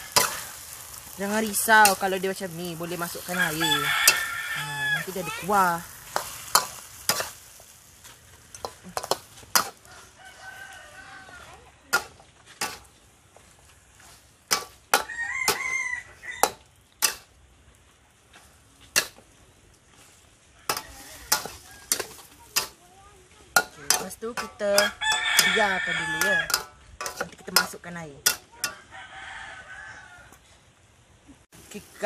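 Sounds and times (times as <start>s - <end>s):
metal spatulas scraping a wok: 0.0s - 7.5s, 8.4s - 10.2s, 11.9s - 12.9s, 14.0s - 15.6s, 16.4s - 17.3s, 20.7s - 22.8s, 23.6s - 28.9s
meat frying: 0.0s - 22.8s
rooster crowing: 3.3s - 5.2s, 9.8s - 11.6s, 15.0s - 16.6s, 20.6s - 22.0s, 24.8s - 26.6s, 28.7s - 30.4s.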